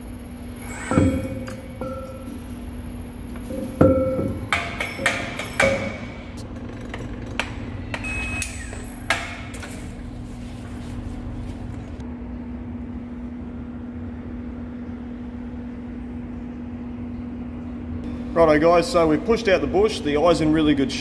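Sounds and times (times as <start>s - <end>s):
low workshop hum: 0.0s - 21.0s
metal-on-metal knocks: 0.9s - 2.4s, 3.4s - 8.1s.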